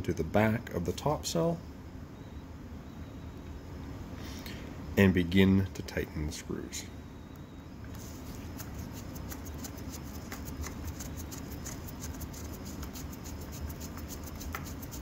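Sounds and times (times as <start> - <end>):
steady low hum: 0.0 - 15.0
screwdriver ticking and scratching: 8.6 - 15.0.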